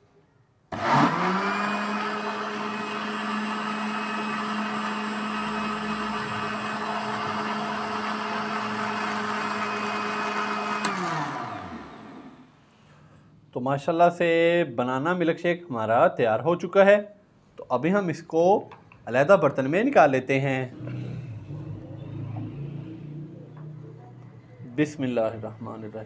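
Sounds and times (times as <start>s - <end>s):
electric blender motor whine: 0.7s - 12.6s
blender switch click: 10.7s - 11.1s.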